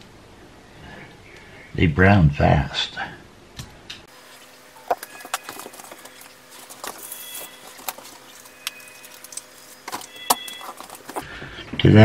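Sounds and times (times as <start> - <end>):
high ringing tones: 4.8 - 11.2.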